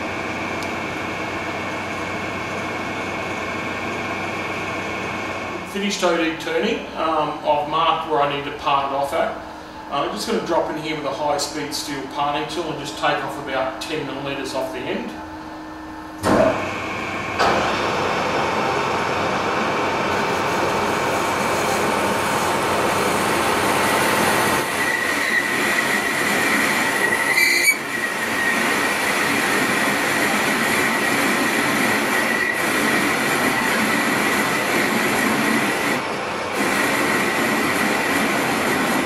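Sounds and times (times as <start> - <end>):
metal lathe running: 16.2 - 39.0
high-pitched squeal of cutting tool: 23.8 - 28.8, 32.1 - 34.3.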